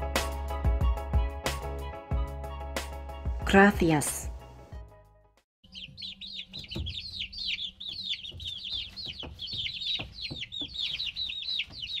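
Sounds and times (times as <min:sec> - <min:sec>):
baby chicks peeping: 0:05.6 - 0:12.0.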